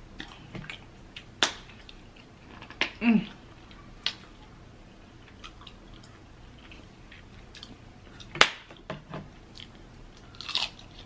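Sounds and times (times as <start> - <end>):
chewing crunches: 9.5 - 11.0.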